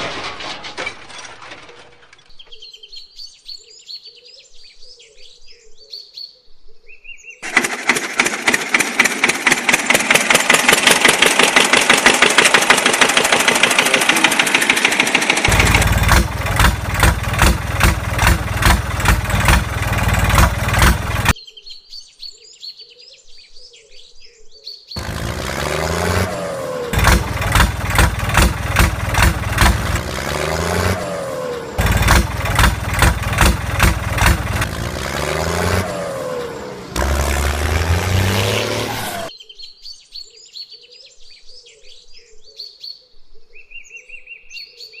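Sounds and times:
birds chirping: 2.2 - 7.4
tractor engine chugging: 7.4 - 21.4, 25.0 - 39.3.

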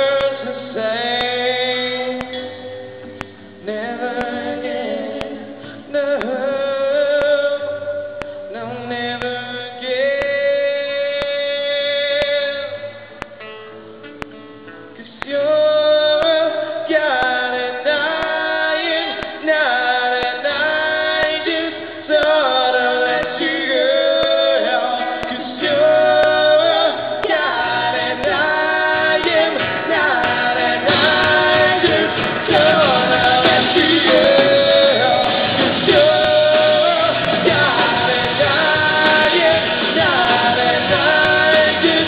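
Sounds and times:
man singing: 0.0 - 13.4, 15.0 - 42.0
acoustic guitar: 0.0 - 42.0
live band playing: 18.2 - 42.0.

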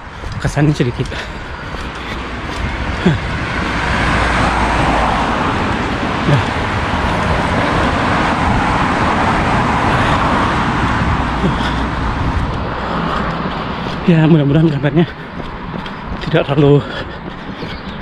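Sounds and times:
steady low rumble: 0.0 - 17.5
vehicles passing: 0.0 - 18.0.

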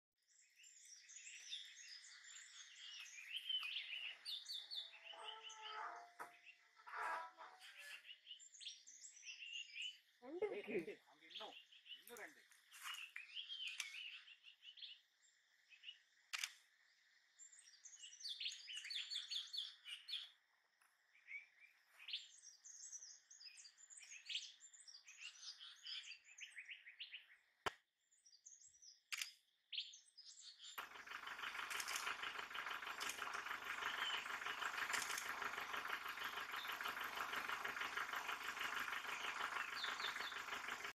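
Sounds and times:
small birds chirping: 0.2 - 40.9
sharp clicks: 16.3 - 16.6, 30.8 - 40.9.

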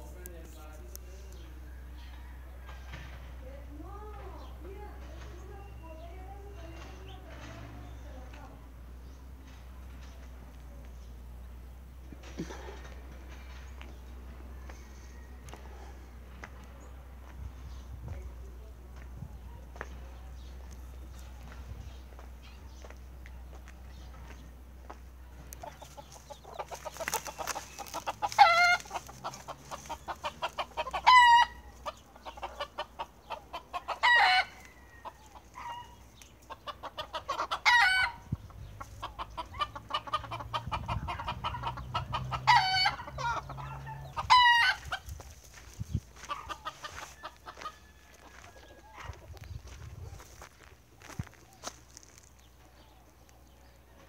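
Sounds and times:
chickens clucking: 0.0 - 54.0
chicken squawking: 25.8 - 34.5, 35.6 - 38.2, 39.0 - 45.1, 46.3 - 47.6.

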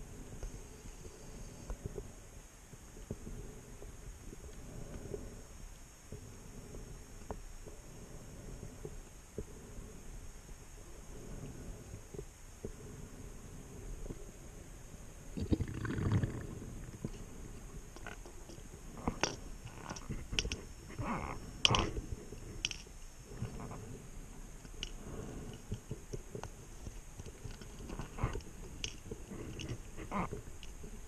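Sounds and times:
diving gear clicks and knocks: 18.0 - 20.6.

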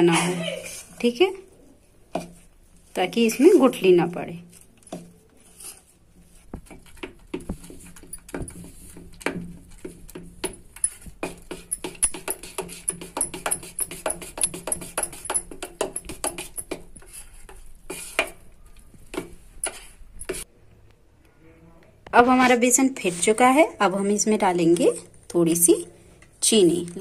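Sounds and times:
wet batter stirring: 1.8 - 3.5, 4.4 - 20.5.

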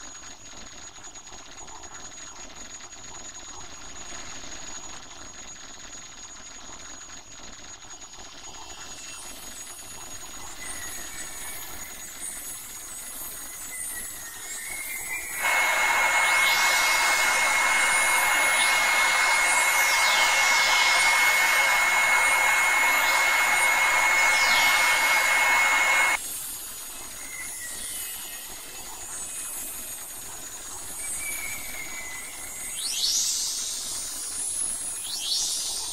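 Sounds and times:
loud rushing hiss with whistle: 13.8 - 26.2
faint gliding tones: 15.3 - 26.2.

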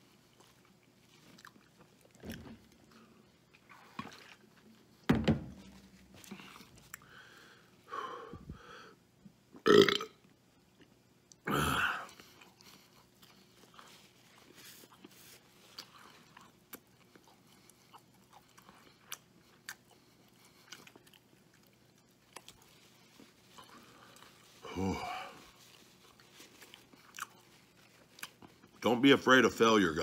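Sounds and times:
faint chewing: 0.0 - 5.0, 5.7 - 7.4, 12.1 - 28.9
man burping loudly: 9.6 - 10.2, 11.4 - 12.1.

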